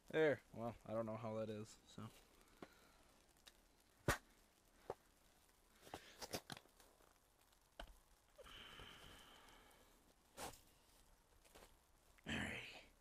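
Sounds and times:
fabric rustle: 0:10.0 - 0:12.0.

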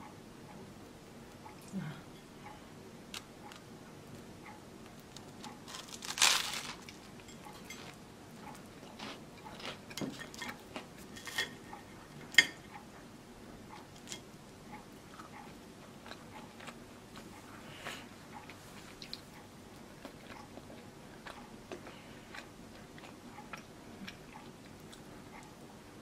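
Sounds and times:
toast crunching: 0:05.1 - 0:08.0, 0:08.8 - 0:11.5
cutlery scraping and tapping: 0:11.1 - 0:11.6.

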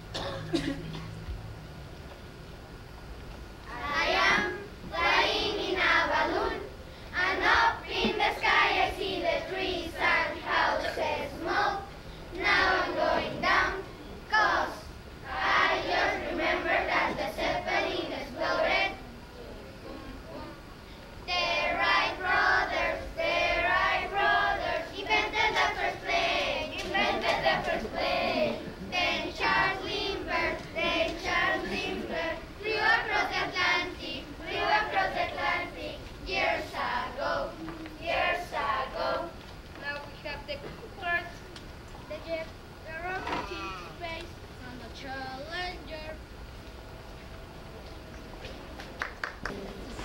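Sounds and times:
children singing in unison: 0:03.7 - 0:19.0, 0:21.3 - 0:39.4.

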